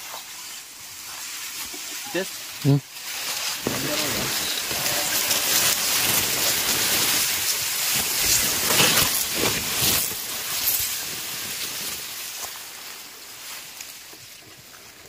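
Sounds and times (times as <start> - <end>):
grass rustling against phone: 0.0 - 14.6.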